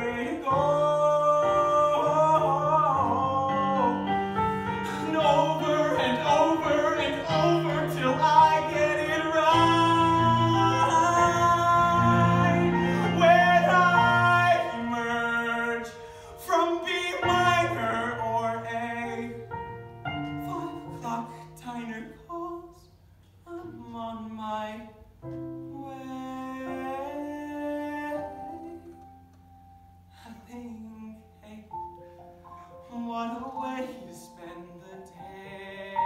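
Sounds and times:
man singing slow song: 0.0s - 19.5s, 25.7s - 29.0s, 32.8s - 36.0s
piano accompaniment: 0.0s - 22.7s, 23.4s - 36.0s.

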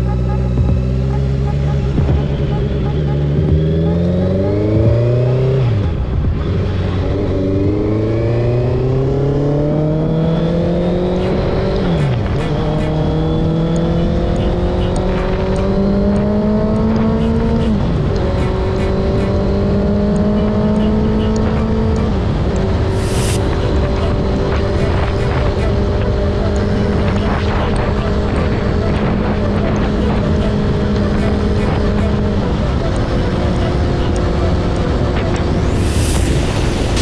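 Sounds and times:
motorcycle engine accelerating: 0.0s - 37.0s
steady rushing noise: 21.1s - 37.0s.

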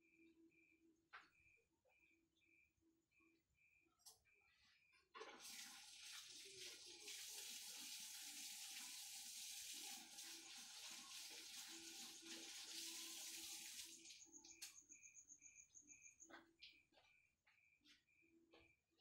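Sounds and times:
faint water running: 5.1s - 14.7s.

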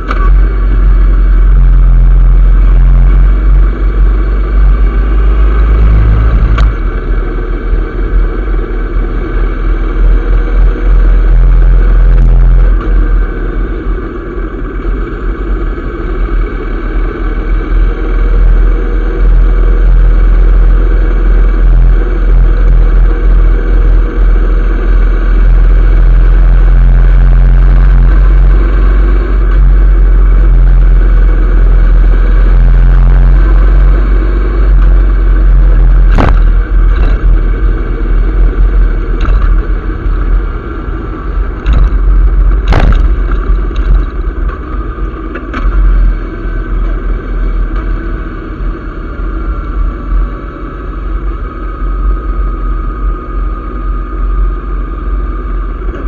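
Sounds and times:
motorcycle running: 0.0s - 56.0s
sharp cracks: 41.6s - 44.6s.

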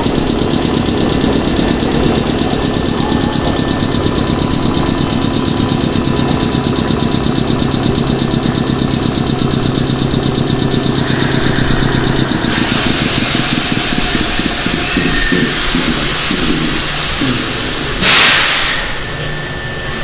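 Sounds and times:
low hum: 0.0s - 18.1s
air compressor chugging: 0.0s - 20.0s
loud hiss of escaping air: 12.5s - 19.0s.

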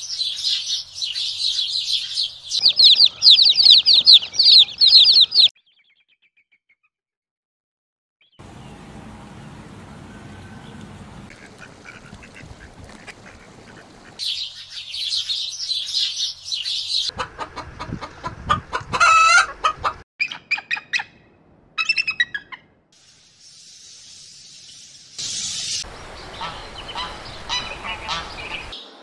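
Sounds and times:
rapid high-pitched calls: 1.5s - 5.5s
chicken squawking: 2.6s - 5.5s, 17.1s - 21.1s, 26.4s - 28.4s
chickens clucking: 2.6s - 5.5s, 17.1s - 20.0s
high-pitched chirring: 2.6s - 5.5s.

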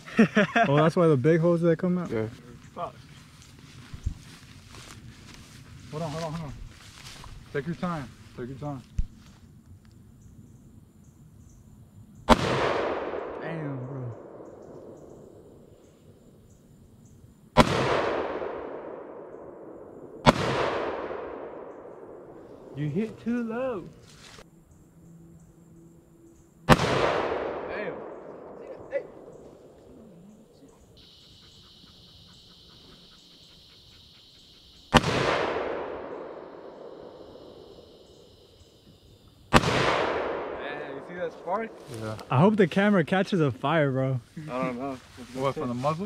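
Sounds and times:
rifle gunshots with echo: 12.3s - 15.5s, 17.6s - 22.8s, 26.7s - 29.4s, 34.9s - 38.5s, 39.5s - 41.8s.

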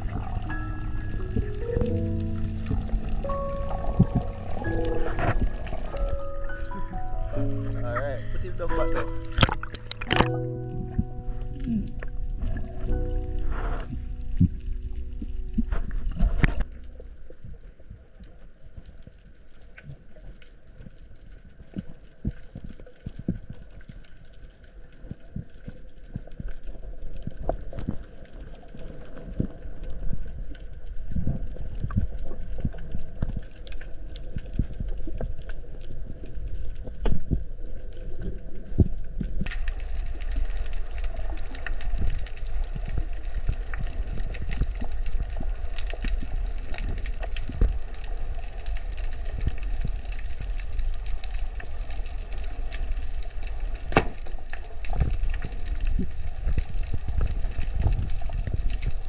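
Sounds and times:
underwater rumble: 0.0s - 59.0s
underwater clicks and thumps: 1.2s - 6.9s, 8.6s - 17.6s, 53.8s - 59.0s.

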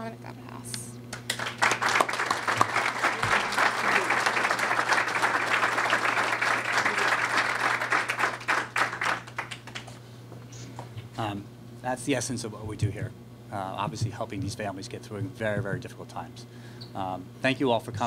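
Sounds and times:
audience applauding: 1.2s - 10.0s.

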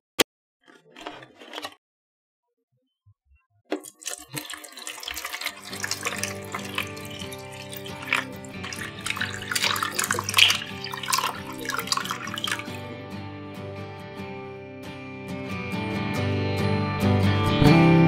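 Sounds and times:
water splashing and trickling: 3.7s - 12.8s
background music: 4.4s - 18.0s.

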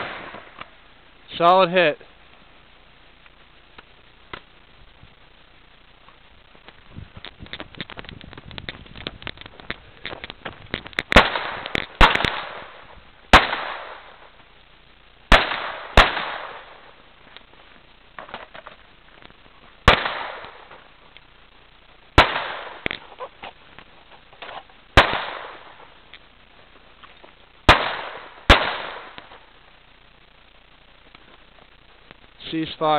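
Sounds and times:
pistol shots with echo: 11.1s - 14.1s, 15.3s - 16.8s, 19.9s - 20.6s, 22.2s - 22.9s, 25.0s - 25.7s, 27.7s - 29.3s.

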